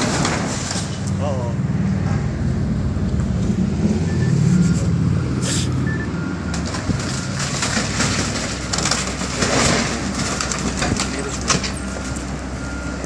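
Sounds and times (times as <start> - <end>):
debris clattering and crunching: 0.0 - 1.0, 6.5 - 13.0.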